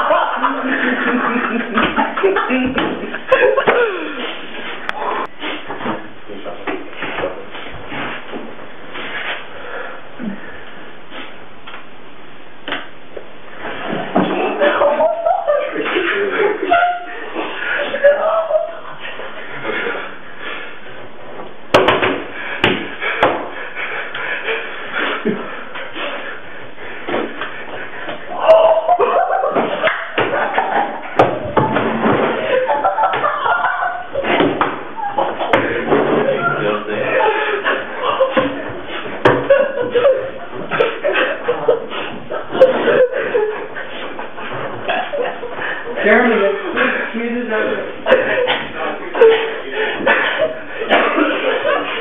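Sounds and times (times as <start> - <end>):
young men laughing: 0.0 - 5.3, 14.0 - 20.2, 22.9 - 52.0.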